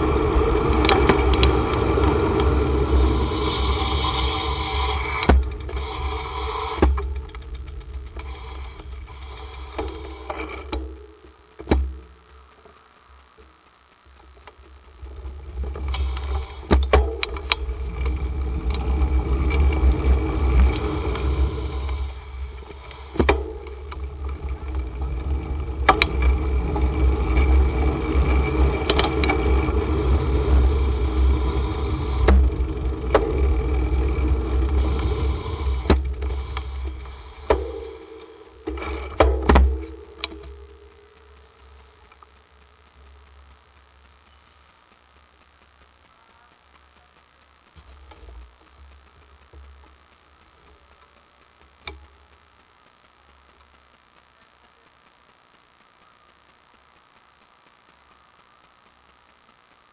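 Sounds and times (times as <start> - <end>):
sharp clicks and knocks: 0.0 - 59.9.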